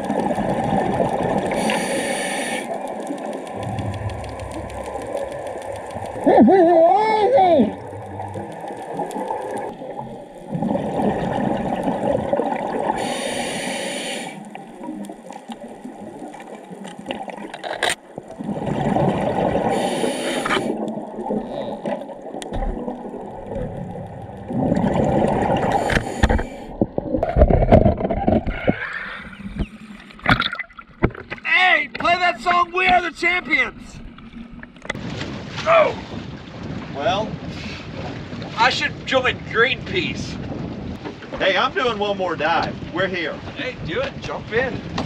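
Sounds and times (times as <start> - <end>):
exhaled air bubbling: 0.0 - 31.5
regulator inhale hiss: 1.5 - 2.7, 13.0 - 14.4, 19.7 - 20.8, 25.7 - 26.8
water sloshing: 14.4 - 32.2.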